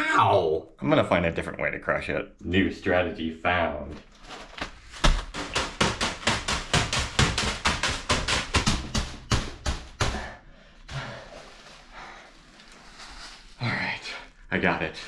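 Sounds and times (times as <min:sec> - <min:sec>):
plastic bag rustling: 0:04.0 - 0:08.6, 0:10.8 - 0:14.0.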